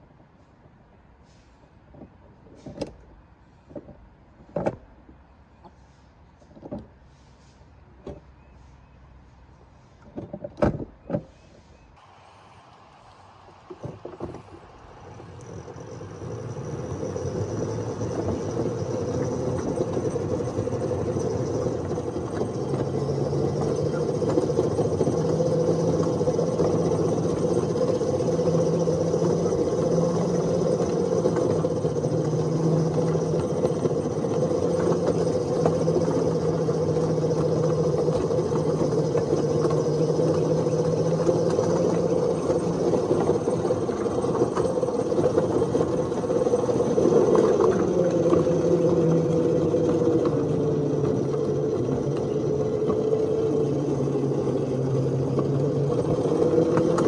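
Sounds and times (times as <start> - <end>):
miniature train running on rails: 11.5 - 57.0
low hum: 11.7 - 57.0.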